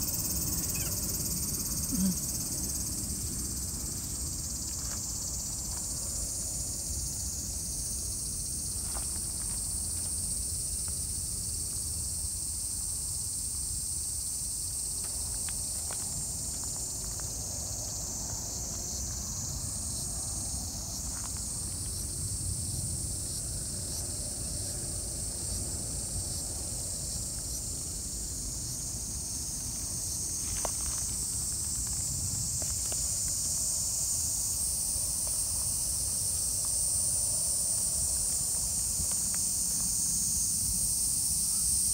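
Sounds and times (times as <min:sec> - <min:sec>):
crickets trilling: 0:00.0 - 0:41.9.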